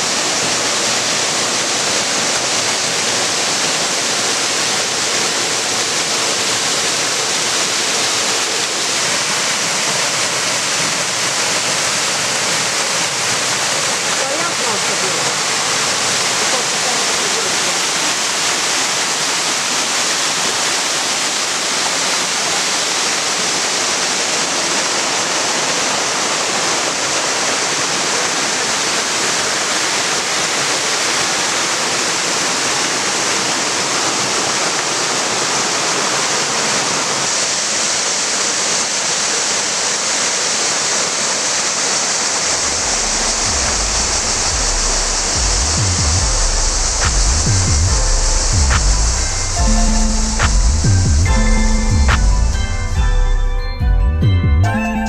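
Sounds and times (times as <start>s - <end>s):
waterfall rushing over rocks: 0.0s - 53.0s
music with low bass line: 42.6s - 55.0s.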